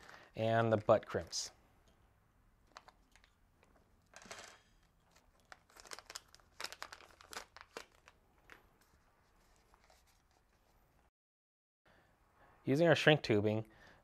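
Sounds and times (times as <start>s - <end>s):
plastic bag crinkling: 2.6s - 10.7s.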